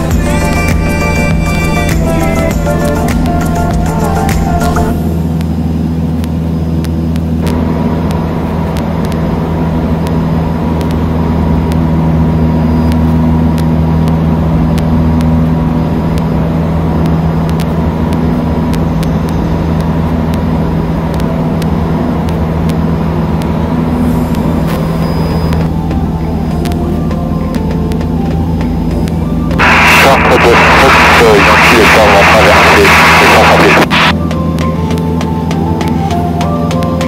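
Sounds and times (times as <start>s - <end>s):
airplane engine and propeller drone: 0.0s - 37.0s.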